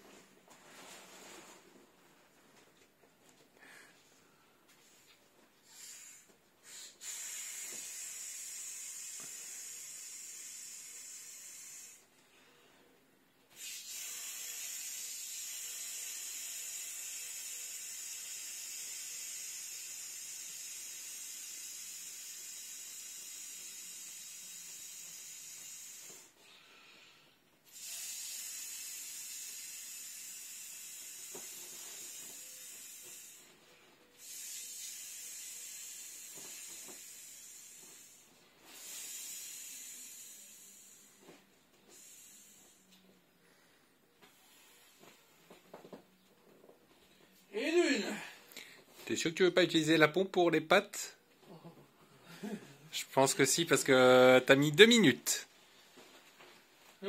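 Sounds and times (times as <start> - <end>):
breath blown into valve: 5.6 - 12.1, 13.5 - 33.6, 34.2 - 43.7.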